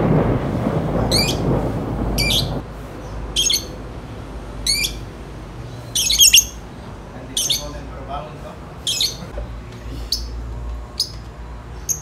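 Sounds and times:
low rumble: 0.0s - 5.8s
lovebirds high-pitched calls: 1.1s - 1.5s, 2.2s - 3.8s, 4.6s - 7.9s, 8.8s - 9.3s, 10.0s - 12.0s.

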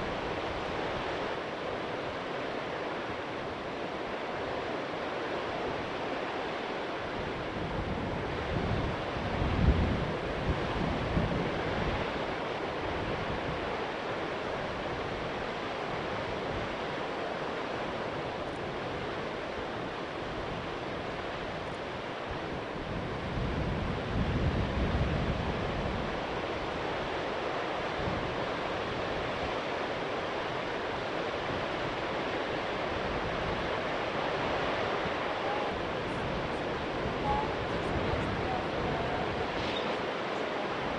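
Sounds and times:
water rushing through spillway: 0.0s - 40.9s
wind buffeting microphone: 7.0s - 13.8s, 17.8s - 40.9s.

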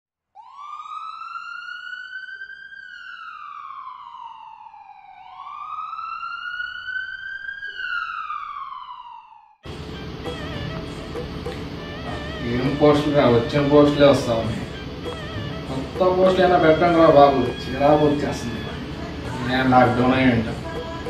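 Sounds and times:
siren wailing: 0.3s - 21.0s
music: 9.7s - 21.0s.

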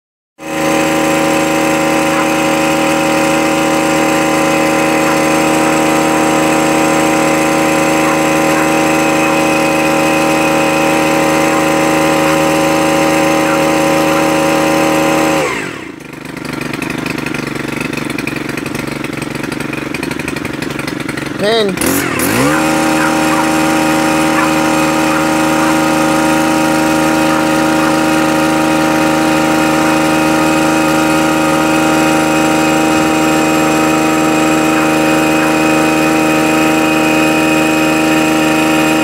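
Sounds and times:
small engine running: 0.4s - 39.0s.

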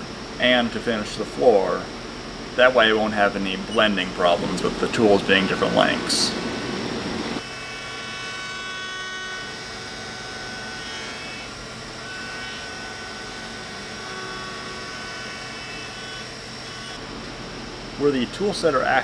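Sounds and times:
high cutting whine: 0.0s - 17.3s
machine hum: 0.0s - 18.6s.

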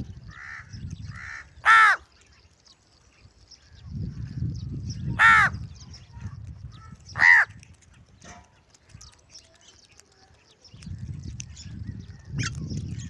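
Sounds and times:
crow cawing: 0.3s - 2.0s, 5.2s - 5.6s, 7.2s - 7.6s.

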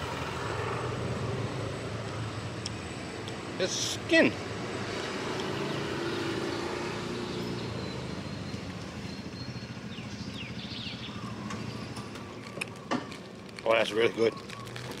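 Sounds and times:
vehicle engine passing by: 0.0s - 2.6s, 4.4s - 12.5s.

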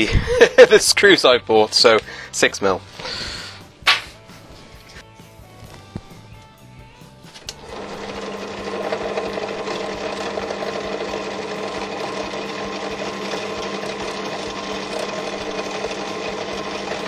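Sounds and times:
pillar drill motor humming: 7.4s - 17.0s.

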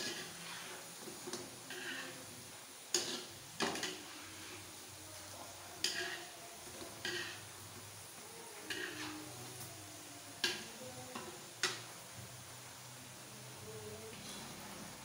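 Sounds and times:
metal spatula scraping wok: 0.0s - 4.8s, 5.8s - 7.6s, 8.6s - 9.4s
faint frying sizzle: 0.0s - 15.0s.

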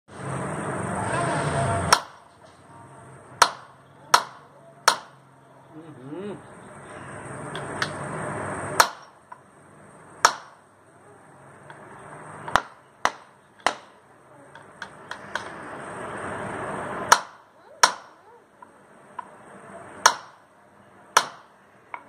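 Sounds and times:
rushing noise: 0.1s - 2.0s, 14.9s - 17.2s
loud sharp knocks: 1.9s - 2.3s, 3.4s - 5.2s, 8.8s - 9.2s, 10.2s - 10.6s, 12.5s - 14.0s, 17.1s - 18.1s, 20.0s - 20.4s, 21.2s - 22.0s.

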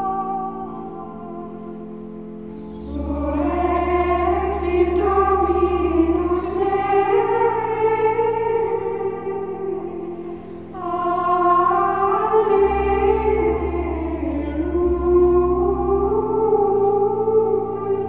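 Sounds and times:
choir singing over held chords: 0.0s - 18.0s
low bass: 10.8s - 18.0s.

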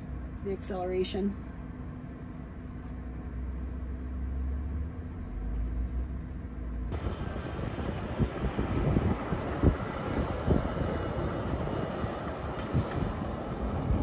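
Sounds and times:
truck cab road rumble and hum: 0.0s - 14.0s
tyre and wind noise: 6.9s - 14.0s.

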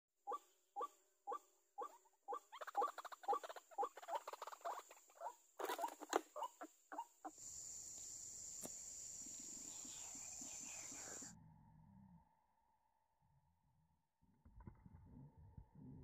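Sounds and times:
bird harsh repeated calls: 0.3s - 7.4s
bird flapping and rustling: 5.6s - 6.3s
faint hiss: 7.3s - 11.3s.

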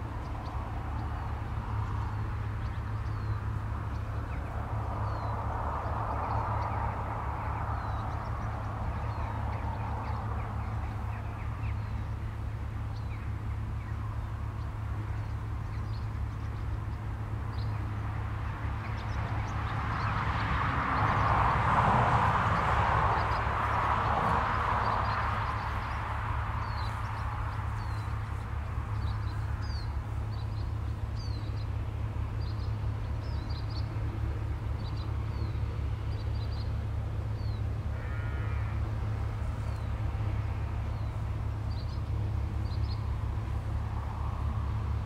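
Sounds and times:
small birds chirping: 0.0s - 21.6s, 22.2s - 45.0s
steady low rumble: 0.0s - 45.0s
vehicle tyre noise on road: 0.0s - 45.0s.

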